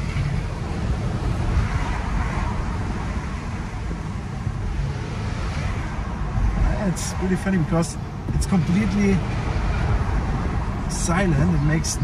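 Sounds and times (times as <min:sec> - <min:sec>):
road and tyre noise: 0:00.0 - 0:12.0.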